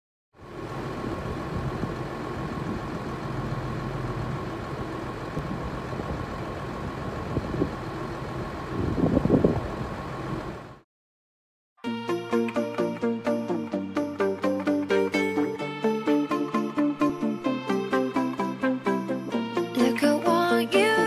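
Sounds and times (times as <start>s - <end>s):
diesel tractor engines running: 0.4s - 10.8s.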